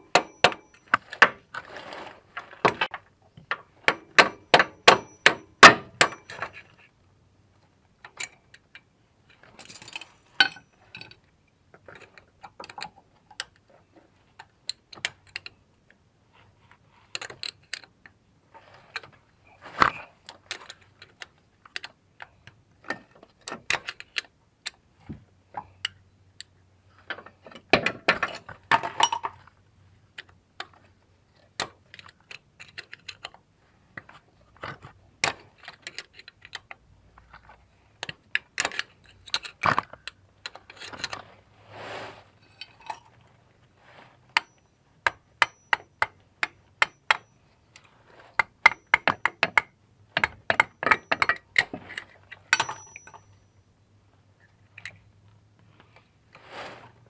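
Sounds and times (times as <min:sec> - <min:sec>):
hand tool clicks and metal clinks: 0:03.5 - 0:06.7, 0:08.0 - 0:11.2, 0:44.3 - 0:53.6.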